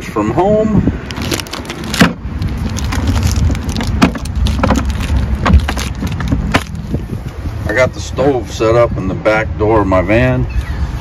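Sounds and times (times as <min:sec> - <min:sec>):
low steady rumble: 0:00.0 - 0:11.0
plastic bag handling: 0:01.0 - 0:07.0.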